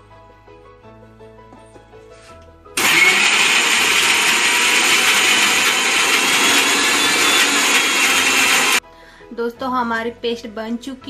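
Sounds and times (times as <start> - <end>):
mixer grinder running: 2.8 - 8.8.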